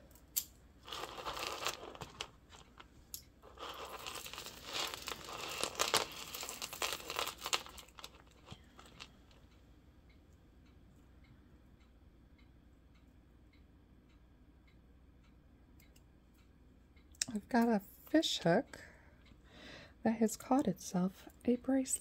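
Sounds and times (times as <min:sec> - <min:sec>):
beads and chains clicking: 0:00.9 - 0:02.8, 0:03.4 - 0:09.4.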